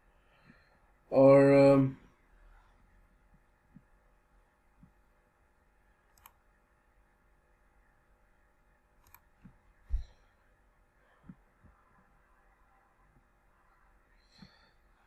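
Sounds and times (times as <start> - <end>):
mouse button clicks: 6.2 - 6.4, 9.0 - 9.2.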